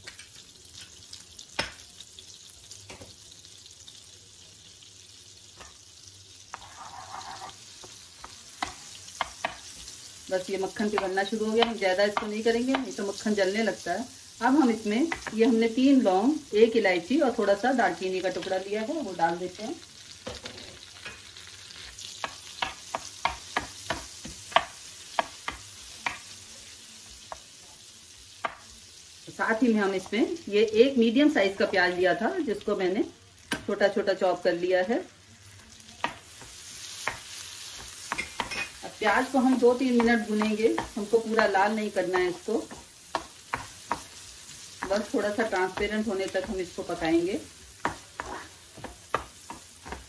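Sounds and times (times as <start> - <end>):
butter sizzling in frying pan: 0.0 - 50.0
spatula going into pan: 6.5 - 9.9, 35.5 - 41.6, 42.4 - 50.0.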